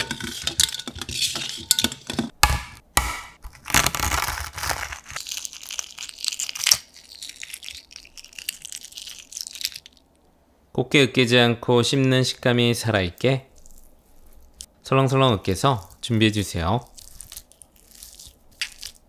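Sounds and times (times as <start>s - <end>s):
eggshell crinkling as peeled: 3.4s - 10.2s, 13.2s - 14.7s, 15.5s - 19.0s.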